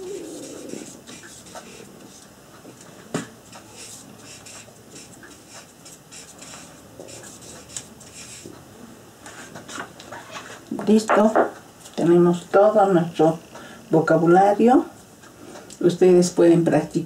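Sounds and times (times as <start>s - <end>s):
marker scratching on paper: 0.0s - 2.2s, 3.5s - 8.5s.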